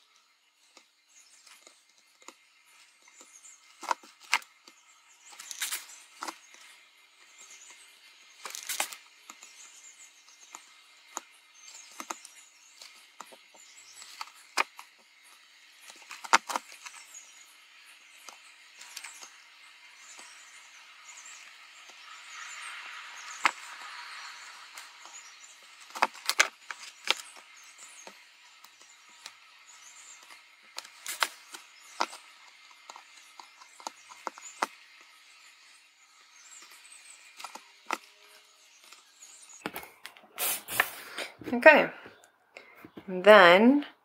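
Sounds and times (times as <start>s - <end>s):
brief hisses: 40.4s - 41.4s.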